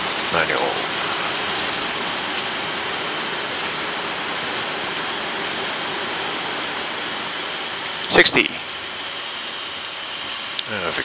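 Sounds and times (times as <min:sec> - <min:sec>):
rushing cockpit noise: 0:00.0 - 0:06.6, 0:08.0 - 0:08.7.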